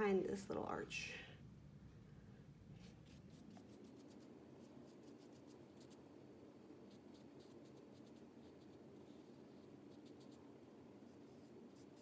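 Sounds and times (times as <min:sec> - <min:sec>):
paintbrush dabbing on paper: 0:02.8 - 0:06.0, 0:06.8 - 0:12.0.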